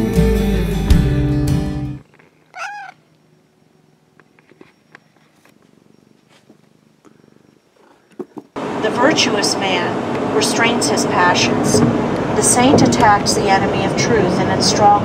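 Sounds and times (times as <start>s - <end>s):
intro music: 0.0s - 2.0s
cat meowing: 2.5s - 3.0s.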